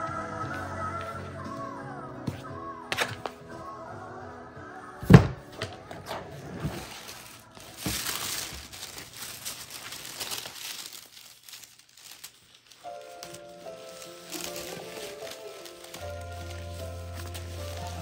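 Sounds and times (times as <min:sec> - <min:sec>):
box thump: 0:05.0 - 0:07.1
tissue paper rustling: 0:05.6 - 0:18.0.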